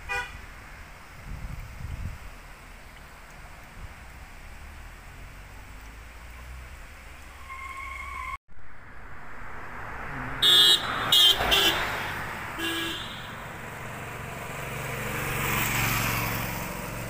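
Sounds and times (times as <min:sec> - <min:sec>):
vehicle horn honking: 0:00.0 - 0:00.4, 0:10.4 - 0:11.9, 0:12.6 - 0:13.5
vehicle approaching on road: 0:00.4 - 0:17.0.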